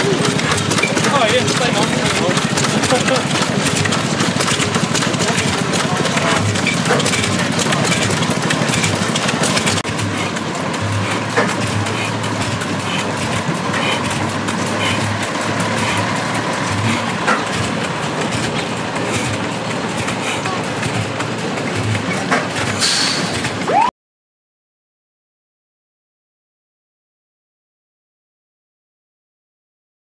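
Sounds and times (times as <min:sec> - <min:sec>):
oil engine running: 0:00.0 - 0:23.9.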